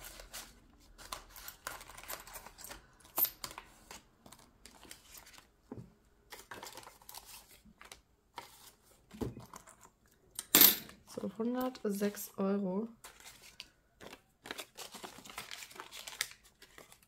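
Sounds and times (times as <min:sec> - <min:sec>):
banknotes rustling: 0:00.0 - 0:05.6, 0:06.2 - 0:10.0, 0:12.9 - 0:17.0.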